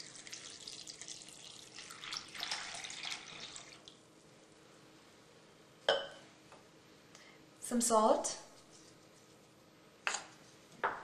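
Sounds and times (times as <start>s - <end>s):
water pouring into pot: 0.0s - 4.0s.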